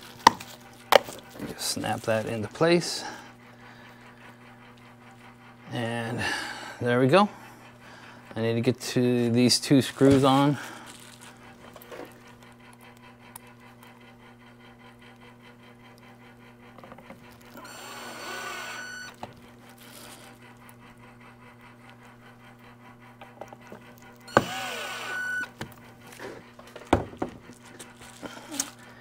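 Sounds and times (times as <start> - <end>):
low electrical hum: 0.0 - 29.0
cordless drill motor whine: 15.1 - 20.6, 23.4 - 28.9.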